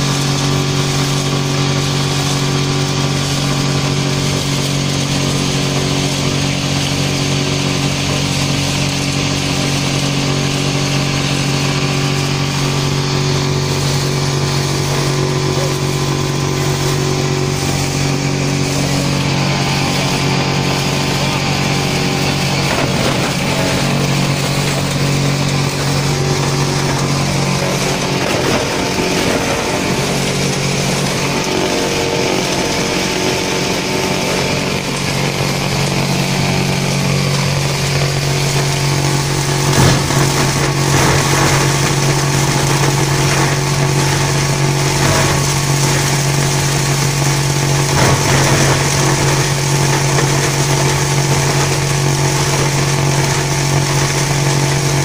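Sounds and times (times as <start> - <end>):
shredder cutting bags: 0.0 - 55.0
shredder motor hum: 0.0 - 55.0
sharp knocks: 22.2 - 31.9, 38.5 - 52.1.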